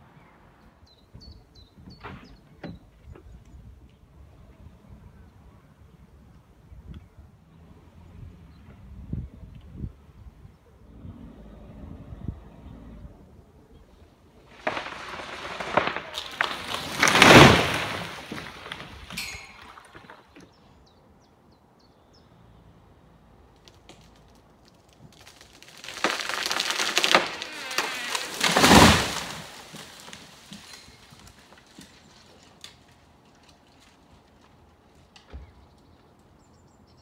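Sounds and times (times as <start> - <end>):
branches breaking and swishing: 14.5 - 20.2, 23.6 - 32.0
tree trunk thudding on ground: 14.5 - 20.2, 25.0 - 31.3.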